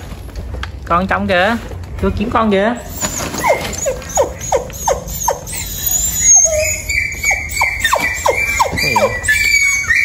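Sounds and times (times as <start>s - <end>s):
puppies squealing and whining: 2.8s - 10.0s.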